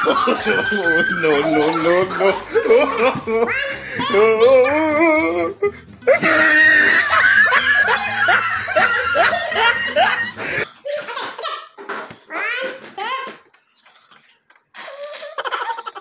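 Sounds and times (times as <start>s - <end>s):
children and woman laughing: 0.0s - 11.8s, 14.8s - 16.0s.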